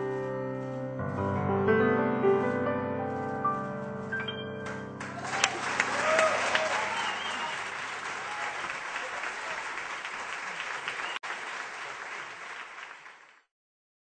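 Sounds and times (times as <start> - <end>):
crowd applauding: 5.0 - 13.5.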